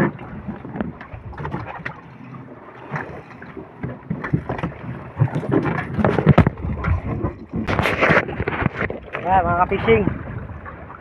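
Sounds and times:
wind on microphone: 4.1 - 11.0.

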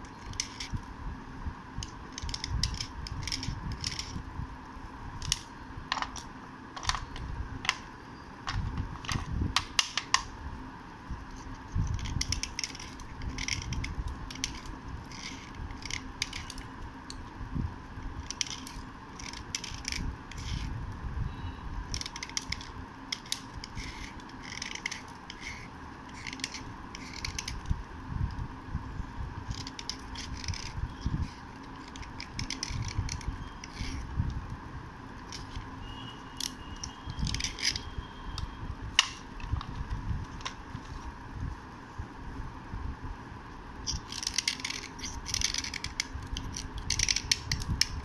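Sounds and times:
pencil scraping: 23.2 - 27.6, 29.5 - 34.1.

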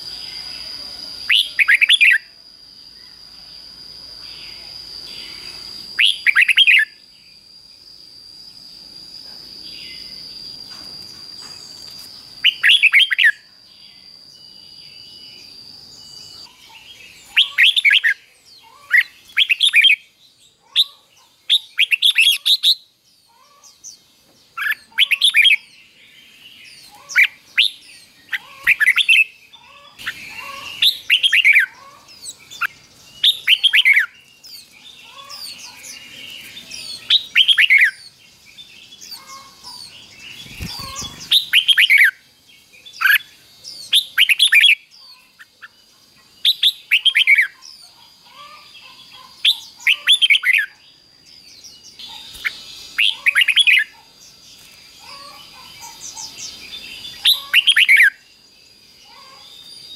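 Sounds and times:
bird singing whistled notes: 0.0 - 59.9.

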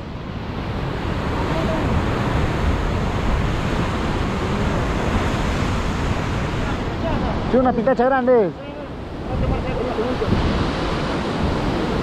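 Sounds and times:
wind noise on microphone: 0.0 - 7.6, 8.9 - 12.0
sea surf breaking on rocks: 0.0 - 12.0.

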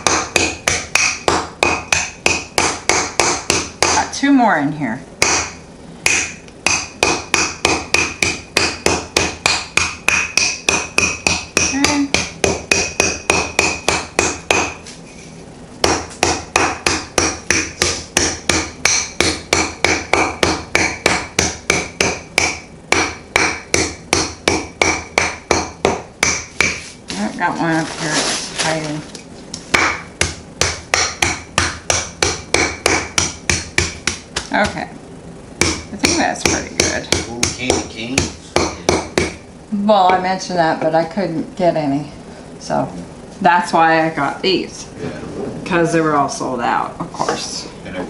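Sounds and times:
rolling pin pounding candies: 0.0 - 4.1, 5.2 - 14.8, 15.8 - 26.9, 29.7 - 34.8.

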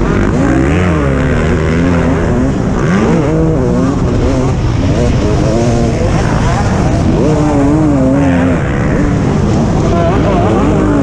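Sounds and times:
motorbike engine revving: 0.0 - 11.0.

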